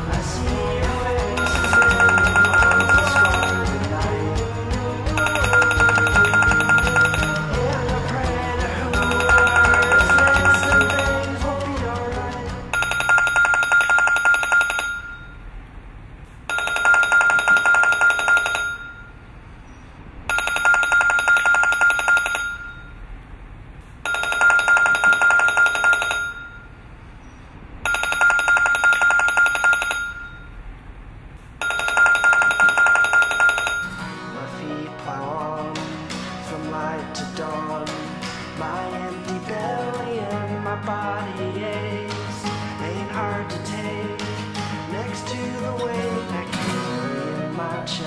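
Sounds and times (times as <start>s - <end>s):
music: 0.0s - 13.0s, 34.0s - 48.0s
telephone ringing: 0.8s - 11.7s, 12.7s - 15.5s, 16.5s - 19.4s, 20.3s - 23.0s, 24.0s - 26.9s, 27.8s - 30.6s, 31.6s - 34.2s.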